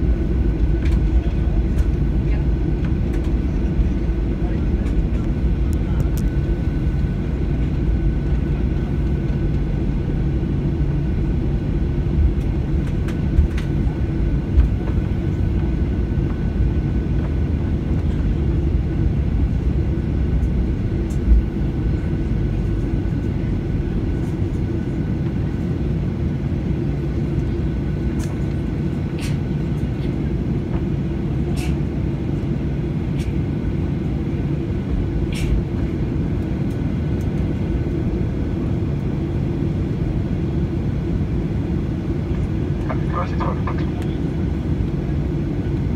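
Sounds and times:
jet engine low rumble: 0.0 - 45.9
faint steady whine: 39.0 - 45.9.

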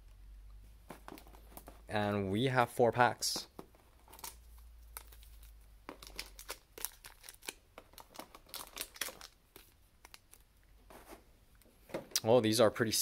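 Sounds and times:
plastic and foil packaging crinkling: 4.1 - 10.5.

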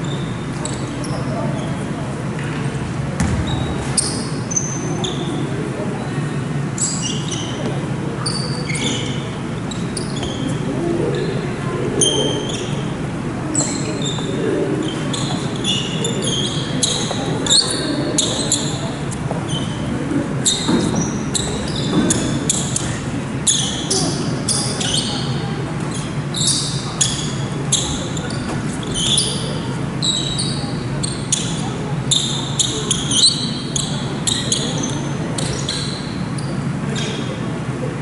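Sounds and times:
sneaker squeaks on wooden floor: 0.0 - 1.9, 3.2 - 5.5, 6.8 - 11.4, 12.0 - 12.9, 13.6 - 37.3
basketball bouncing: 3.2 - 4.3.

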